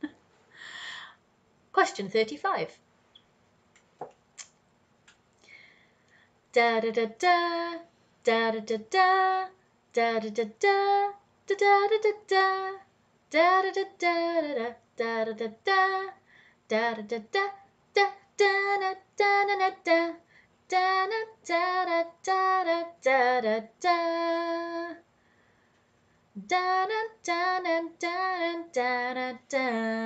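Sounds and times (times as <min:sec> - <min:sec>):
woman singing unaccompanied: 0:06.5 - 0:25.0, 0:26.4 - 0:30.0.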